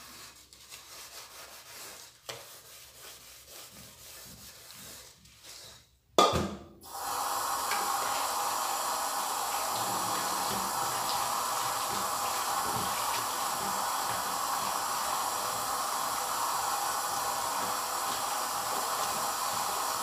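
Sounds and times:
sponge scrubbing a pot: 0.0s - 5.9s, 9.5s - 20.0s
kitchen tap running: 6.8s - 20.0s.

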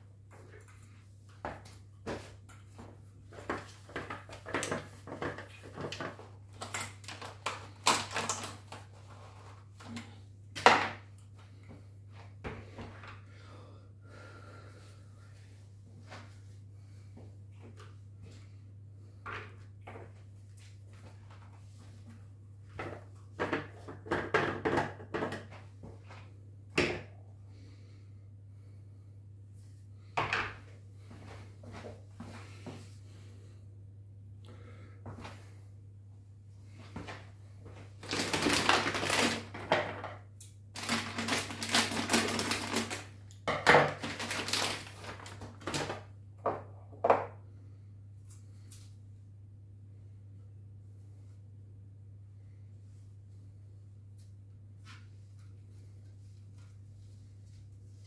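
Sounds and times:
plastic bag rustling: 3.4s - 9.8s, 37.9s - 40.1s, 40.7s - 46.1s
steady low hum: 25.6s - 38.0s.

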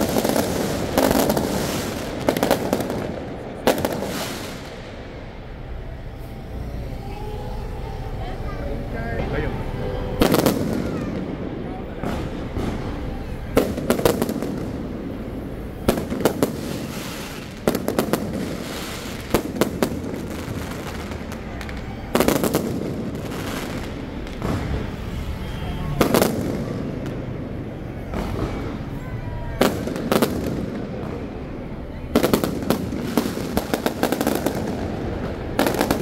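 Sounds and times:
fireworks bangs: 0.0s - 8.2s, 9.2s - 36.0s
steady fireworks rumble: 0.0s - 36.0s.

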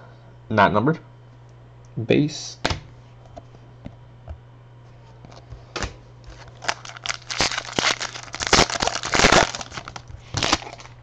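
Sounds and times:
low electrical hum: 0.0s - 11.0s
wrapper crinkling and tearing: 6.3s - 11.0s.

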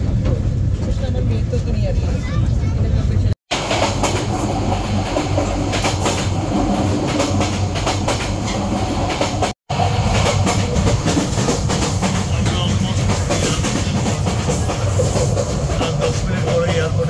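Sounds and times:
train rumble inside carriage: 0.0s - 17.0s
wheels clacking over rail joints: 3.5s - 17.0s.

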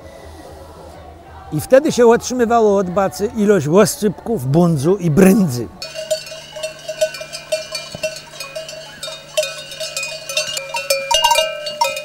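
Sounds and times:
sheep bells clanking: 5.8s - 12.0s.

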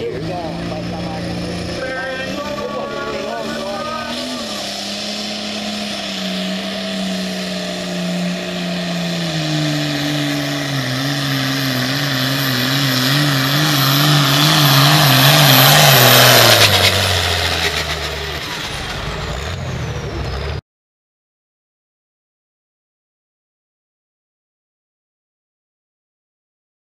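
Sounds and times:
high whine: 0.0s - 20.6s
tractor diesel engine at full throttle: 0.0s - 20.6s
engine rattling crackle: 0.1s - 20.6s.

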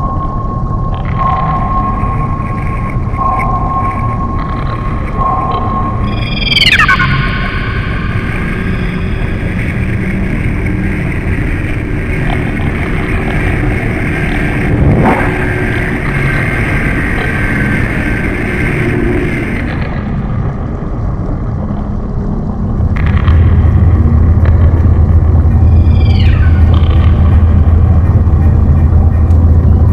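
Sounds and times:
machinery hum: 0.0s - 29.9s
underwater ship rumble: 7.9s - 29.9s.

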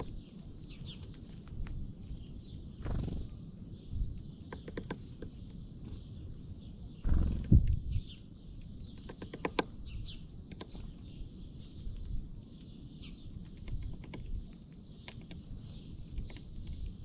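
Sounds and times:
small birds chirping: 0.0s - 17.0s.

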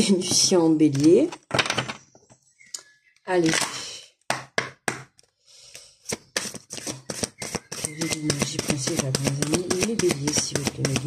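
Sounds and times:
cards being shuffled: 6.1s - 11.0s.

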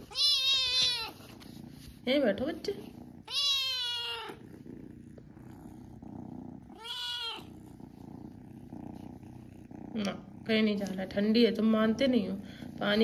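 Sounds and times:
cat meowing: 0.0s - 1.2s, 3.2s - 4.4s, 6.7s - 7.5s
cat purring: 0.0s - 13.0s.

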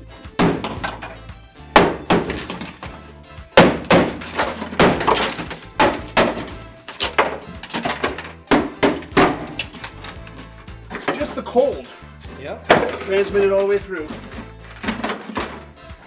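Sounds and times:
frozen mat cracking off metal: 1.8s - 12.0s, 12.7s - 15.8s.

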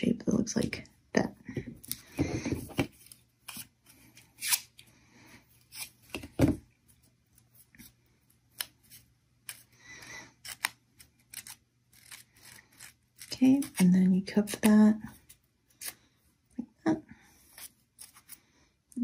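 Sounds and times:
tool scraping paper: 10.4s - 16.0s.

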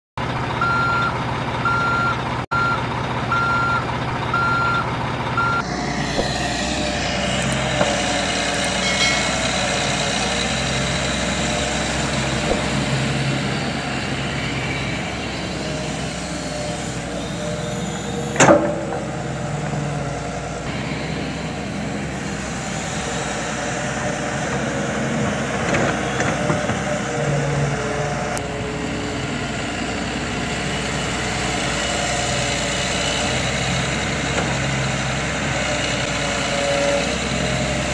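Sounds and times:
reversing beeps: 0.6s - 5.7s
sharp knock: 6.1s - 6.7s.

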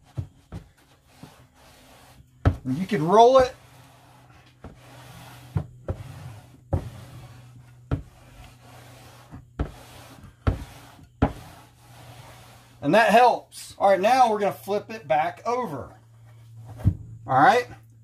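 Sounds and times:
bat rubbing on carpet: 0.0s - 12.8s.

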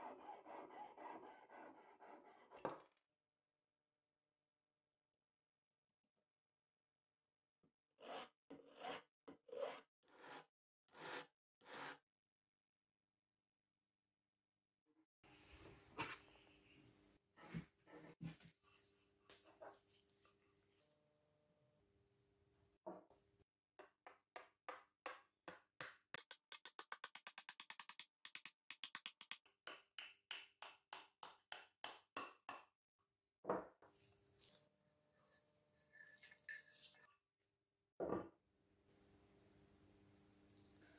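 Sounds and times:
hand file scraping copper wire: 0.0s - 2.7s.

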